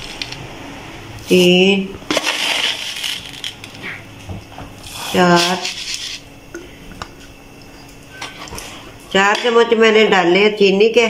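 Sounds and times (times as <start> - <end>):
woman's voice: 1.3 - 2.0, 5.0 - 5.8, 9.1 - 11.0.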